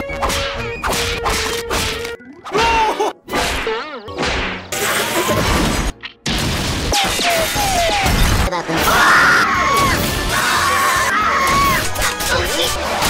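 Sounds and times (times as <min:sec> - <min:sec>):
cartoon whacks: 0:00.1 - 0:02.7, 0:03.3 - 0:08.9
wavering cartoon cries: 0:08.8 - 0:11.9.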